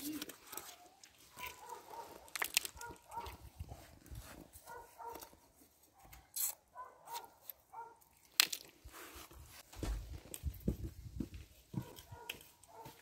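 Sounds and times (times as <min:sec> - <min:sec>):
dog barking faintly: 0:04.6 - 0:05.3, 0:11.7 - 0:13.0.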